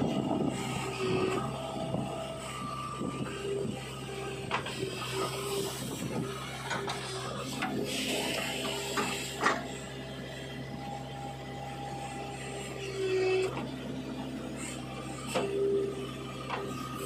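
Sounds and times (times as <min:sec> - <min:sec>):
diesel engine running: 0:00.0 - 0:17.0
hydraulics whining: 0:00.0 - 0:17.0.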